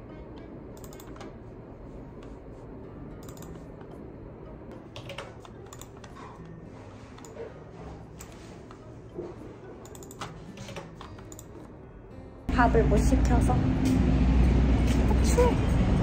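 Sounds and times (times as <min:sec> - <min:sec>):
low background hum: 0:00.0 - 0:16.0
mouse and keyboard clicking: 0:03.2 - 0:03.6.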